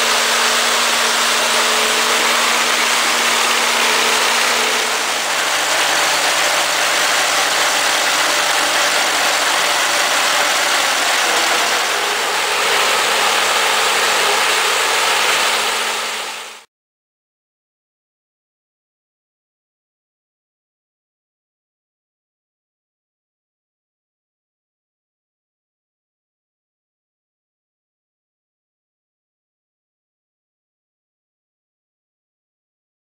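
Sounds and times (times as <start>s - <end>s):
harvester machinery noise: 0.0s - 16.6s
tractor engine running: 0.0s - 16.6s.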